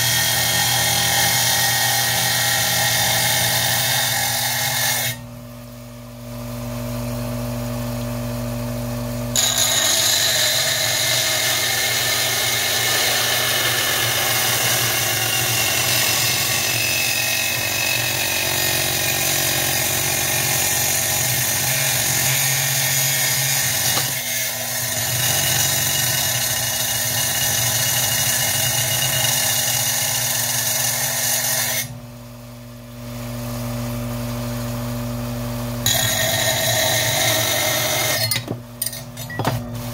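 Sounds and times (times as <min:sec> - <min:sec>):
blade grinding through glass: 0:09.4 - 0:31.9, 0:35.8 - 0:39.5
ring saw motor hum: 0:35.5 - 0:39.9.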